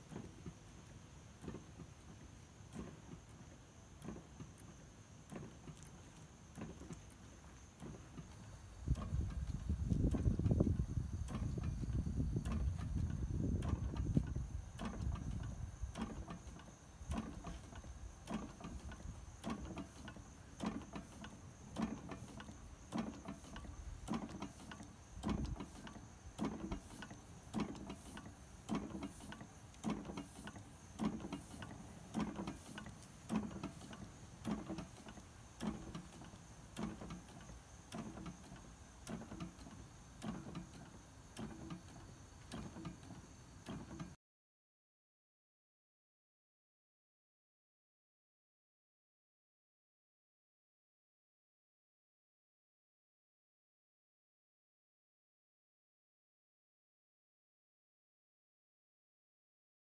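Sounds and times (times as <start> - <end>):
hot air engine knocking: 2.7 - 44.2
light engine clicks: 2.7 - 44.2.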